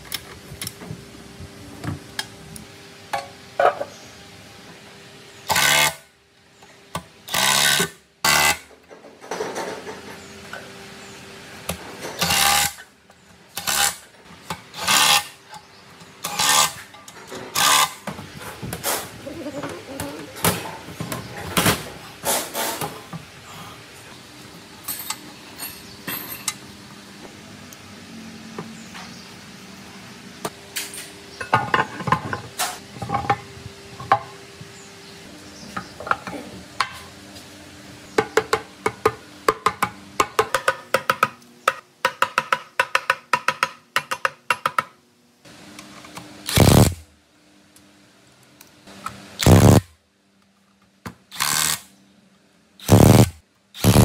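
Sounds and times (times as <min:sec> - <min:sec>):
pneumatic ratchet burst: 0:17.5 - 0:18.0, 0:46.5 - 0:47.0, 0:49.4 - 0:49.9, 0:51.3 - 0:51.9, 0:52.8 - 0:54.0.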